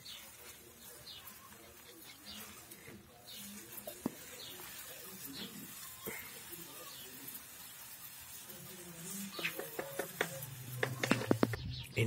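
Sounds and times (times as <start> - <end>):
bird chirps: 9.1 - 12.0.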